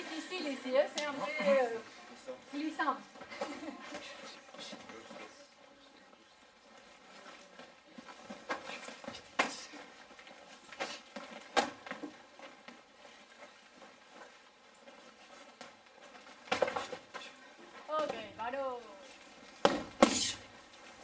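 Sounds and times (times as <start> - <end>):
padded gloves striking slaps: 19.6 - 20.4.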